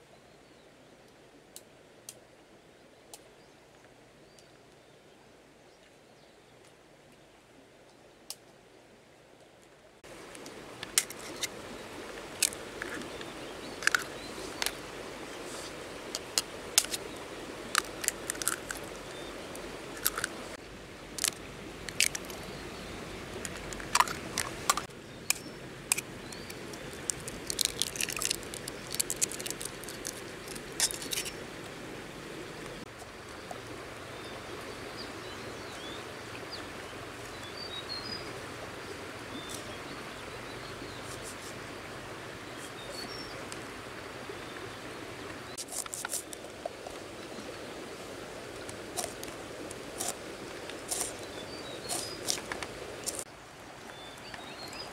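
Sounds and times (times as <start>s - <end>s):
background hiss: 0.0s - 54.9s
knife cracking eggshells: 27.1s - 30.2s.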